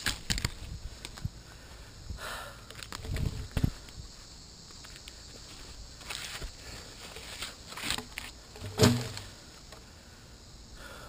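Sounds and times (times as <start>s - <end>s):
crunches and rustles in leaves: 2.7s - 8.6s
thump: 8.6s - 9.3s.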